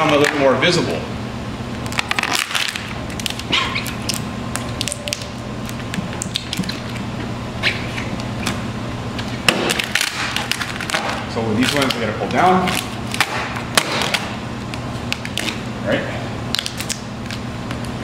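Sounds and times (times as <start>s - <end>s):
steady low hum: 0.0s - 18.0s
vinyl film crackling: 9.2s - 15.6s.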